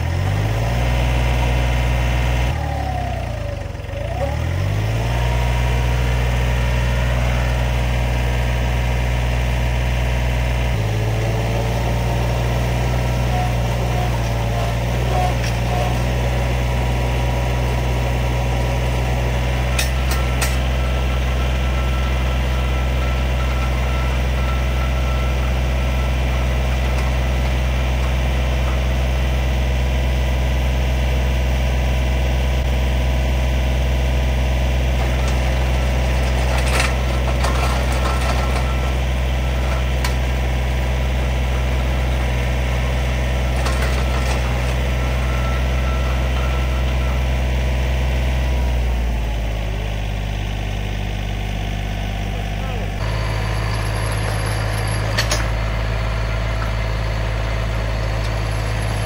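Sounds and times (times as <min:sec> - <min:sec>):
diesel tractor engine running: 0:00.0 - 0:59.0
auger boring into clay: 0:10.7 - 0:30.0, 0:34.8 - 0:48.5.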